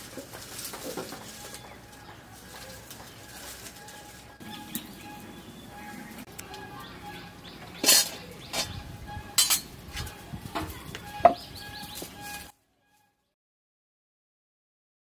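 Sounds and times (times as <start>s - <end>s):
metal wok knocking and clanking: 7.7s - 11.5s.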